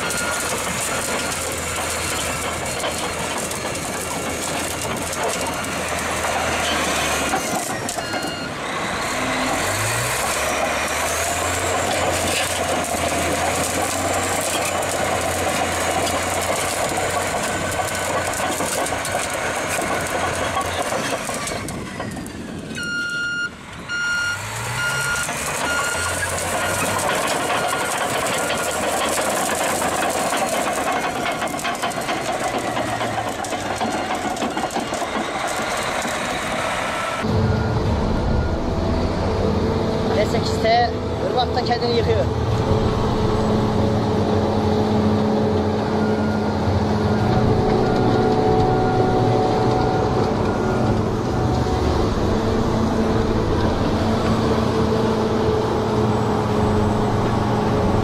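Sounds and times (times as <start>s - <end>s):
reversing alarm beeping: 0.0s - 3.8s, 5.2s - 10.0s, 22.7s - 29.0s, 33.9s - 39.1s, 45.8s - 51.8s
bulldozer diesel engine revving: 0.0s - 58.0s.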